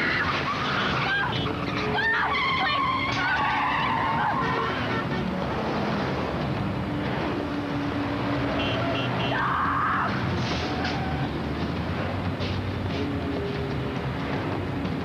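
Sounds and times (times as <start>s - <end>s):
tyres squealing: 0.0s - 5.1s
engine-like hum: 0.0s - 15.0s.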